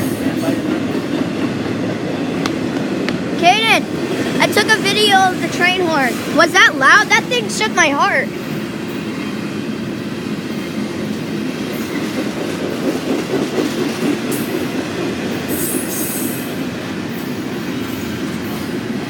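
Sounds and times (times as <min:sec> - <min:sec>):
freight train wheels rumbling: 0:00.0 - 0:19.0.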